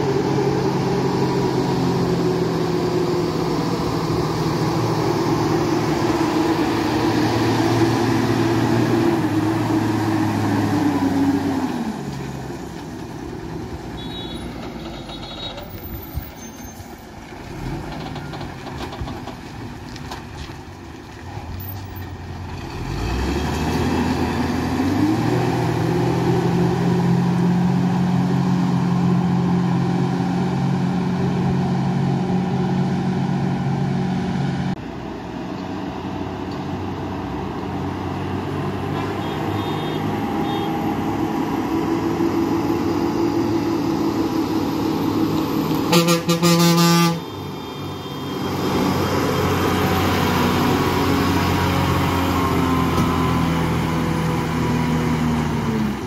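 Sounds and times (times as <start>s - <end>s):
lorry diesel engines labouring: 0.0s - 56.0s
loud vehicle horn: 14.0s - 15.6s, 39.0s - 40.8s, 45.9s - 47.5s.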